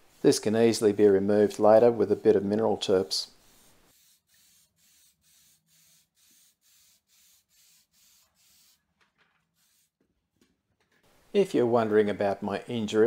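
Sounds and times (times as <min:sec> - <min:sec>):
aerosol can hissing in pulses: 0:03.9 - 0:08.8, 0:09.6 - 0:10.0.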